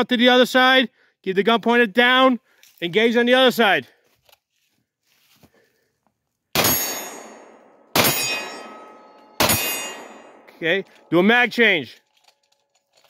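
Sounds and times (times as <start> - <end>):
pistol shots with ringing echo: 6.6 - 11.2.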